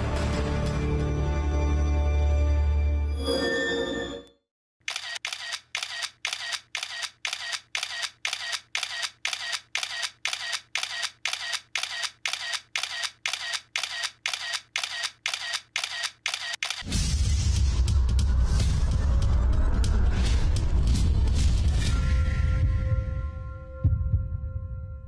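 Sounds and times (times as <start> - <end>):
camera shutter clicking: 4.8 - 16.9
loud music with deep boom: 16.9 - 24.4.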